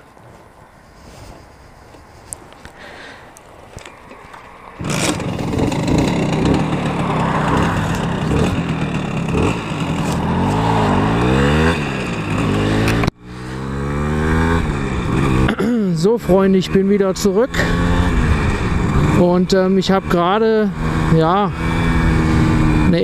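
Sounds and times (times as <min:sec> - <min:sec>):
moped engine accelerating: 0:03.8 - 0:23.0.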